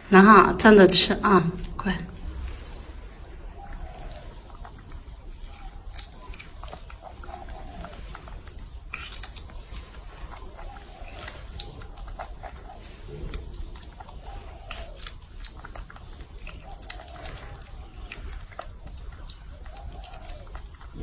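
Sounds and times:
low steady rumble: 0.0s - 16.6s
monkey chewing wet smacks: 1.5s - 21.0s.

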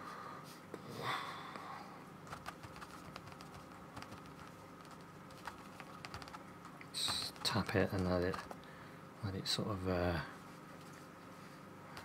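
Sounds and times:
brush tapping on paper: 2.3s - 6.4s, 7.0s - 8.6s.

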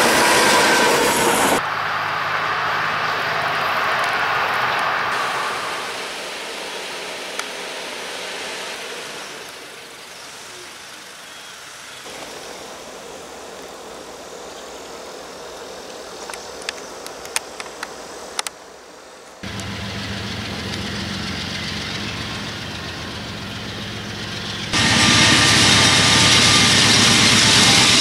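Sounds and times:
locomotive engine rumble: 19.4s - 28.0s.

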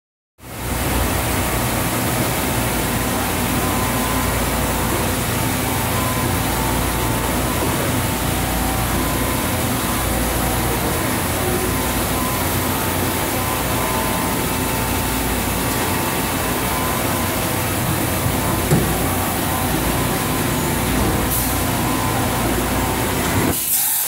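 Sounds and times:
industrial machinery humming: 0.4s - 23.9s.

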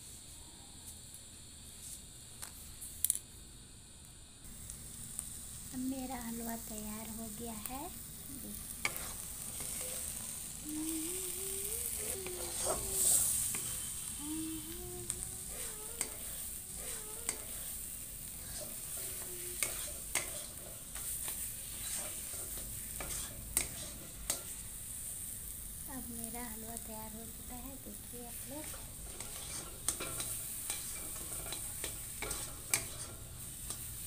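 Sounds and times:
food sizzling in a pan: 0.0s - 34.0s
metal spatula clicking on pan: 19.6s - 21.2s, 28.6s - 33.9s.

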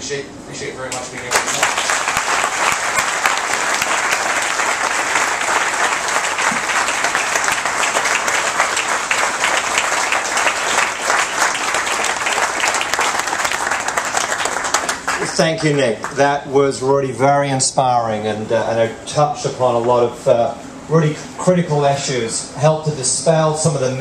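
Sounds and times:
audience applauding: 1.2s - 16.2s.

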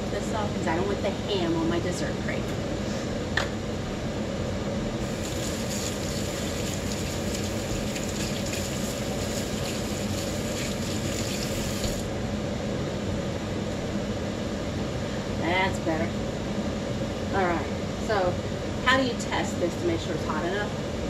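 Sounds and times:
steady background hum: 0.0s - 21.0s
kitchen tap running: 5.0s - 12.1s.

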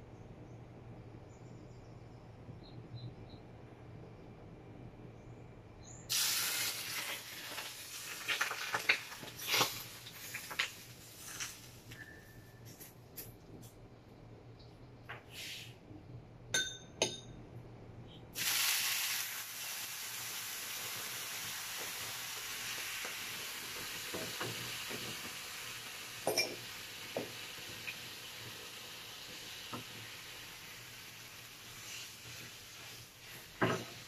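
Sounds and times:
hot oil sizzling in frying pan: 6.1s - 12.0s, 18.4s - 34.0s.

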